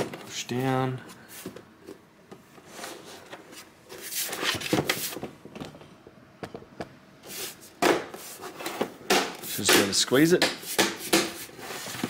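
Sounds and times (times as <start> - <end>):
hands sliding on plastic cover: 10.6 - 12.0.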